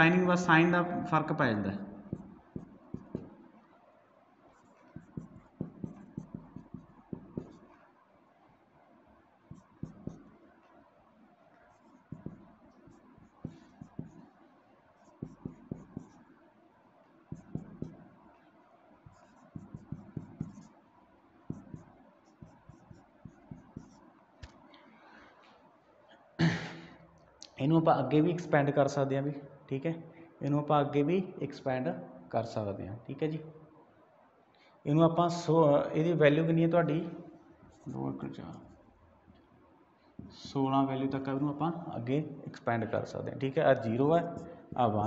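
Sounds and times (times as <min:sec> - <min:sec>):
marker writing on whiteboard: 0:02.0 - 0:03.6, 0:04.4 - 0:08.0, 0:09.4 - 0:24.7, 0:37.6 - 0:40.5, 0:43.8 - 0:45.0.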